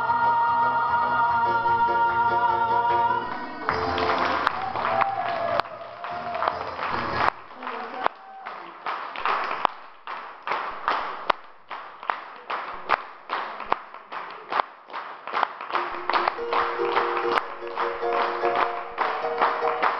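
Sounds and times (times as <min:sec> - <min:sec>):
audience clapping in time: 0:03.2 - 0:19.9
held instrument notes: 0:15.8 - 0:19.9.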